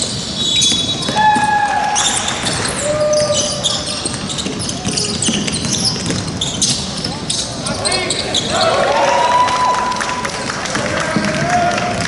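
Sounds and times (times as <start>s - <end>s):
sneakers squeaking: 0.0s - 9.0s
basketball dribbling on hardwood: 3.2s - 6.6s.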